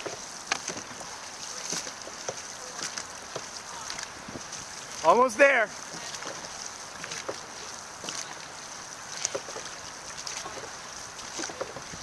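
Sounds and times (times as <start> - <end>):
paddles splashing in water: 0.0 - 12.0
water hiss: 0.0 - 12.0
wind: 0.0 - 12.0.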